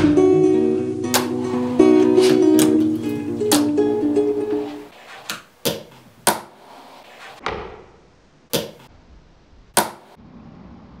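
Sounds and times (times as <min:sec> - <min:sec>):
fingerboard clacking on surfaces: 0:01.2 - 0:01.4.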